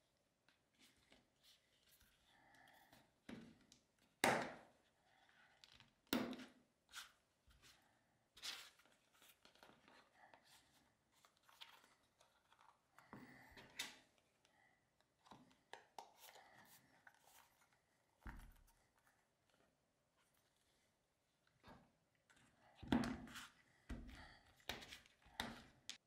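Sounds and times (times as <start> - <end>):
leather wallet handled: 15.2 - 19.7.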